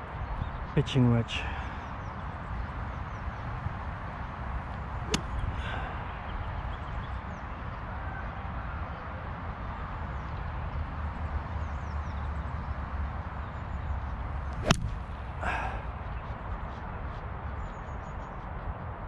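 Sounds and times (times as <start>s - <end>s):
golf club striking ball and turf: 5.0s - 5.5s, 14.5s - 15.2s.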